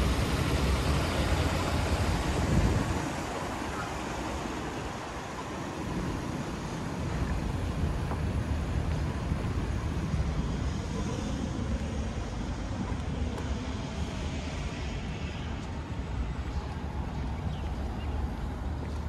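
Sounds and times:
low rumble of road traffic: 0.0 - 19.0.

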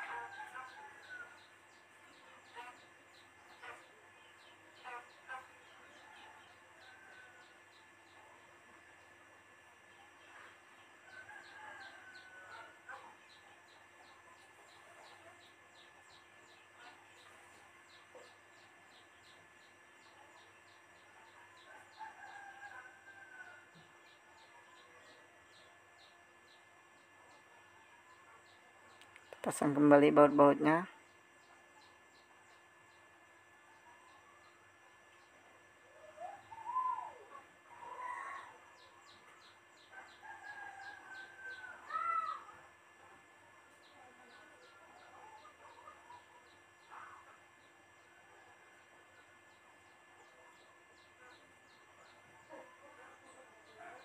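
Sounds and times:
distant rooster crow: 0.0 - 1.7, 6.0 - 7.9, 11.0 - 13.1, 21.6 - 24.1, 36.1 - 42.7.

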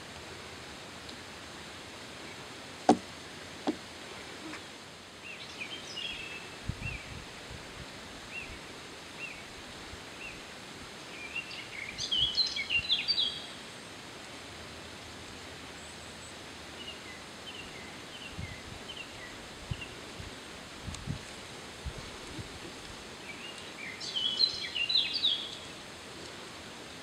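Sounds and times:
flowing water: 0.2 - 5.2.

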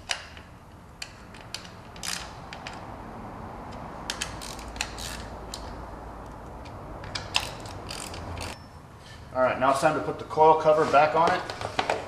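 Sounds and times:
hand ratchet clicking: 1.0 - 2.8, 4.1 - 5.7, 7.0 - 8.6.

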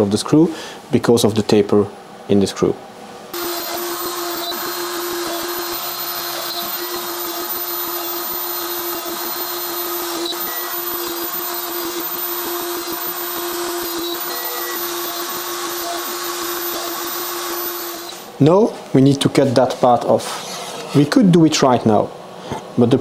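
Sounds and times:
router spindle humming: 3.4 - 18.3.

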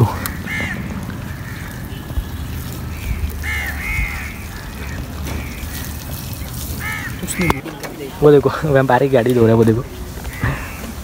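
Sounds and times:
crows cawing: 0.0 - 7.7, 10.1 - 11.0.

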